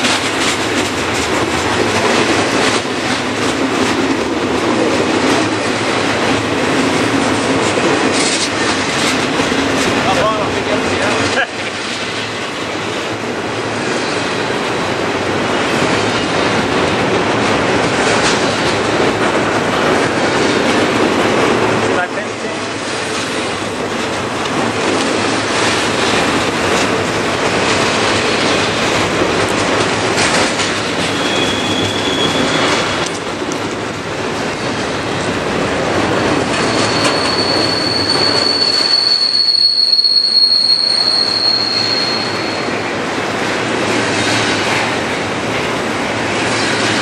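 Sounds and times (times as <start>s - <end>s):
train wheels rumbling on rails: 0.0s - 47.0s
high wheel squeal: 31.0s - 33.1s, 36.5s - 42.8s.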